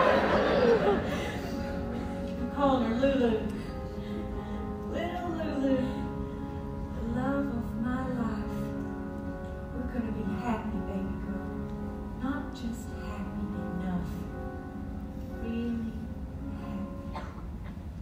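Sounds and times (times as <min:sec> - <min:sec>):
band playing sustained chords: 0:00.0 - 0:18.0
woman singing ballad: 0:07.0 - 0:08.9.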